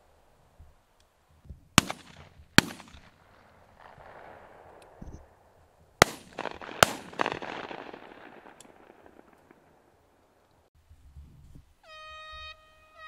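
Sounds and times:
shotgun shots: 1.8 - 10.2
rolling echo: 1.8 - 10.7
air horn: 11.8 - 13.0.

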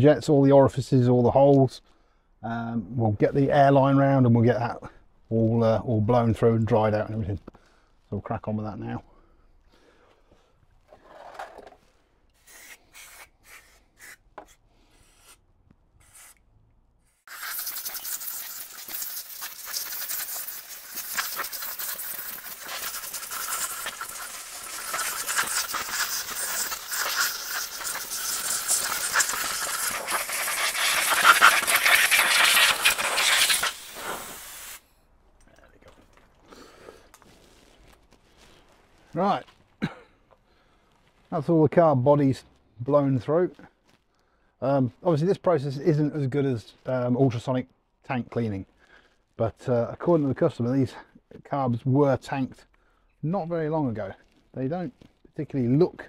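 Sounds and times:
compressed air blow gun hissing: 12.4 - 15.4, 16.0 - 16.4, 17.1 - 34.9.

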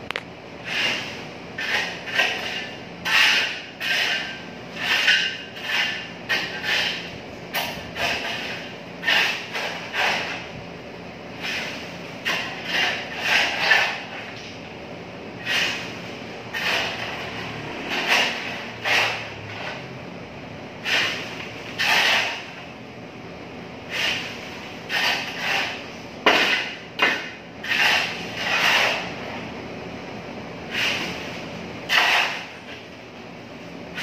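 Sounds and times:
shovel scraping rubble: 0.7 - 10.5, 11.4 - 14.4, 15.4 - 15.9, 16.5 - 19.8, 20.8 - 22.6, 23.9 - 29.1, 31.9 - 32.6.

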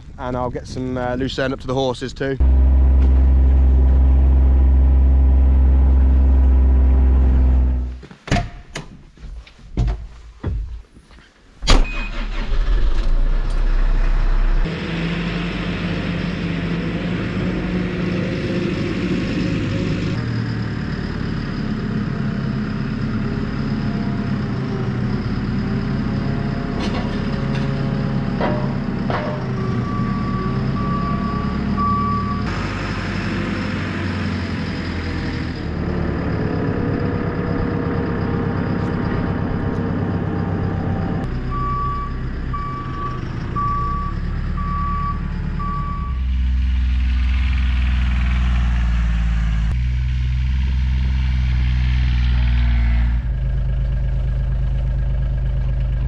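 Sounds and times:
diesel engine starting and running: 0.0 - 8.0, 11.6 - 56.0
reversing alarm beeps: 29.6 - 32.5, 40.4 - 46.2.

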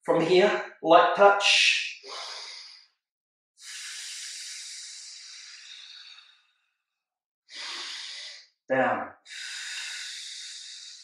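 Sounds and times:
man's hissing exhale: 2.0 - 2.8, 3.6 - 6.3, 7.5 - 8.4, 9.3 - 11.0
short breath: 2.0 - 2.8, 3.6 - 6.5, 7.5 - 8.4, 9.3 - 11.0.

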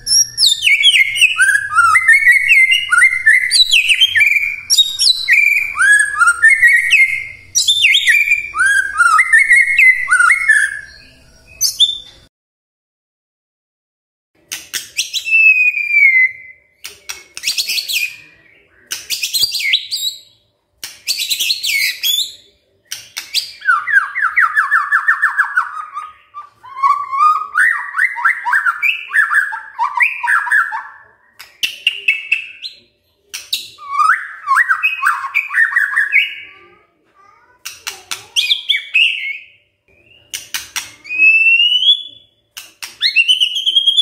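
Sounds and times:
bird singing: 0.0 - 12.3, 21.2 - 32.9, 37.4 - 44.0.

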